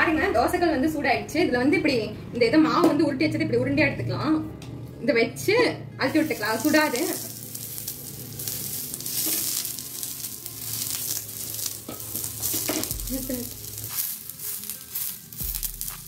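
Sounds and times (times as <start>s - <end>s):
oil sizzling and crackling: 6.0s - 16.0s.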